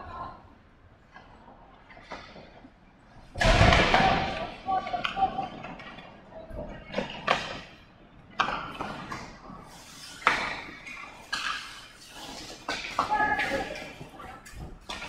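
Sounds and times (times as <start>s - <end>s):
hockey sticks and puck clacking: 3.3s - 15.0s.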